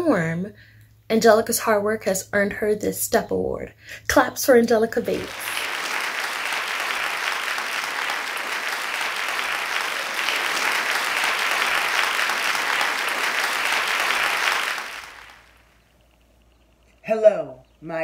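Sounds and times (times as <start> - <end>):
applause: 5.1 - 15.7.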